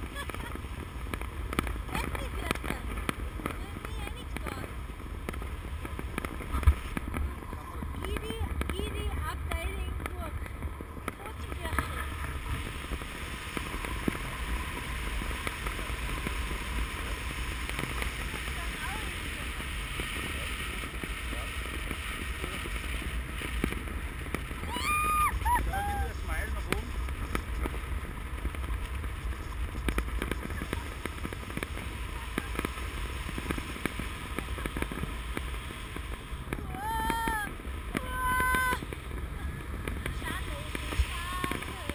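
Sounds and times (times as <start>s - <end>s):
fireworks popping and cracking: 0.0s - 41.9s
wind rushing over microphone: 0.0s - 41.9s.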